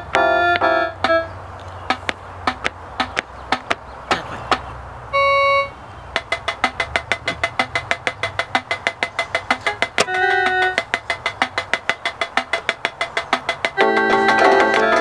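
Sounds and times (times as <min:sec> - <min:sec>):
electronic percussion ticks: 0:01.9 - 0:04.2, 0:06.2 - 0:15.0.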